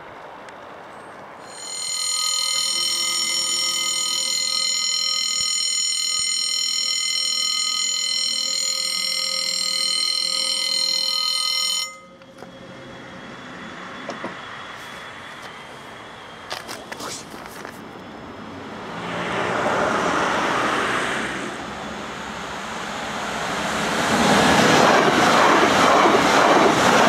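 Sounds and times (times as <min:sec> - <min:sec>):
level crossing bell ringing: 0:01.4 - 0:12.5.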